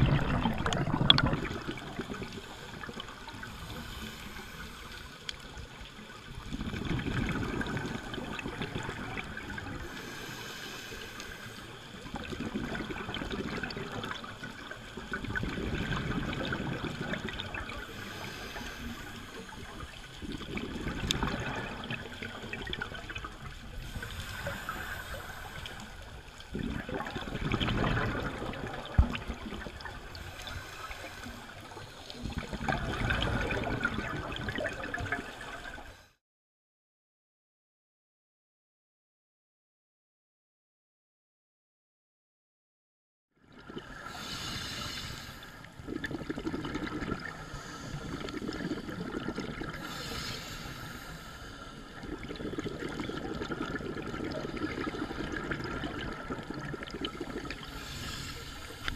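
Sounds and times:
gurgling exhaled bubbles: 0.0s - 35.9s, 43.5s - 58.9s
scuba regulator hissing inhalations: 2.3s - 5.3s, 9.8s - 12.0s, 17.7s - 20.2s, 23.7s - 26.4s, 30.1s - 32.6s, 43.9s - 45.8s, 47.1s - 52.8s, 56.9s - 58.9s.

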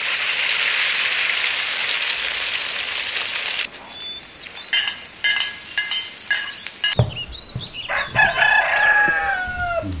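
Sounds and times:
sharp knock: 7.0s - 7.9s
rooster clucking: 7.5s - 10.0s
rooster crowing: 7.6s - 10.0s.

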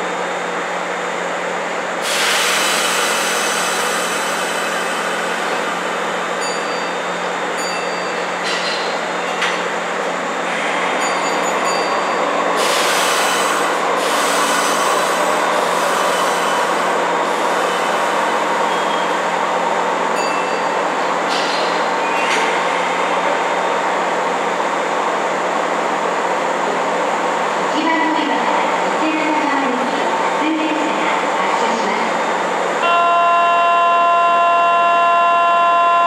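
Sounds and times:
electric train equipment hum: 0.0s - 36.0s
hiss: 2.0s - 5.7s, 12.6s - 18.2s.

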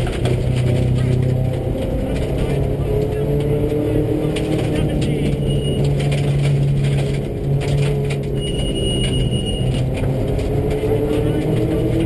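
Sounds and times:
knocks and rattles from gravel road: 0.0s - 12.0s
rally car engine under load: 0.0s - 12.0s.

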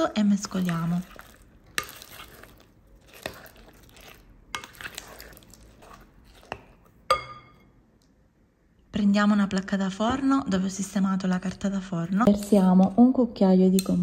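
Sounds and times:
spoon stirring thick batter: 0.0s - 7.6s, 10.8s - 13.1s.

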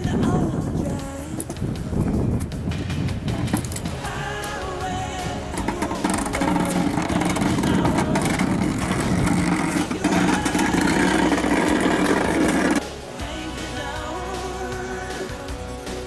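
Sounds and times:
music: 0.0s - 16.0s
boat engine running: 5.0s - 12.8s.

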